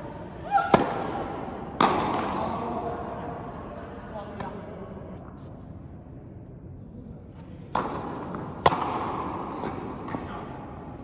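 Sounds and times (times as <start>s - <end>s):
duller ball impact: 7.7s - 10.3s
tennis racket striking ball: 7.7s - 10.5s.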